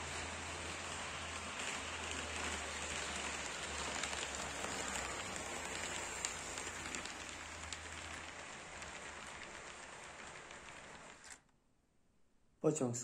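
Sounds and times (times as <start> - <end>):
model train wheels on rails: 0.0 - 11.5
small clicks of train: 0.0 - 11.5.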